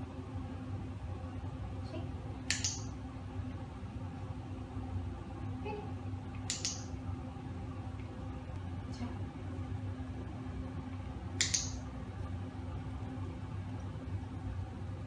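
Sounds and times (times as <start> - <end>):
steady low hum: 0.0 - 15.0
sharp double clicks: 2.5 - 2.9, 6.5 - 6.9, 11.4 - 11.8.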